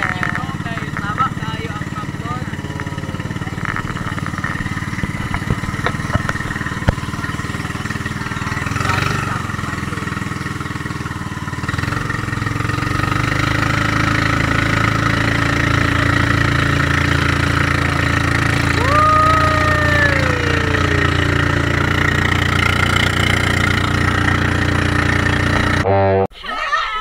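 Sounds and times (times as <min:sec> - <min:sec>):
water rushing along hull: 0:00.0 - 0:25.8
boat engine running: 0:00.0 - 0:25.9
person calling out: 0:18.8 - 0:21.8.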